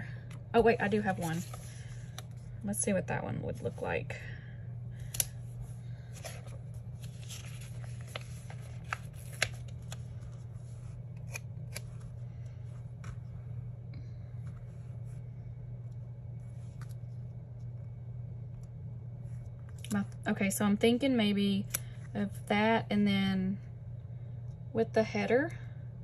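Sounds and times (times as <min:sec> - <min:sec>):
steady low hum: 0:00.0 - 0:26.0
paper rustling: 0:00.9 - 0:02.3, 0:06.0 - 0:12.2.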